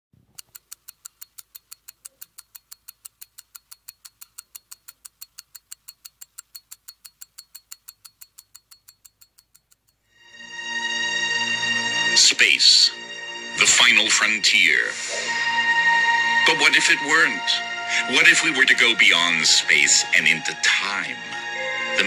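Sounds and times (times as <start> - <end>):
pocket watch ticking: 0.2 - 10.1.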